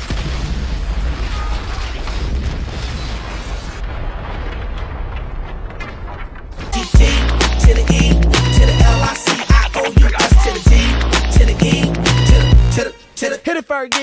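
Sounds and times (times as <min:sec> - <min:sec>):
huge rumbling explosion: 0:00.0 - 0:06.8
rubble crashing down: 0:00.0 - 0:06.8.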